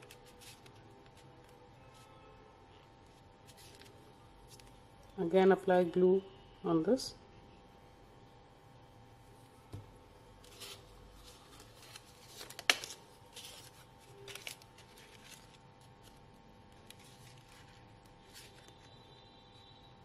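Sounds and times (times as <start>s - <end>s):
card paper rustling: 0.0s - 2.0s, 3.5s - 4.8s, 10.4s - 16.2s, 16.8s - 19.0s
faint steady hum: 0.0s - 20.0s.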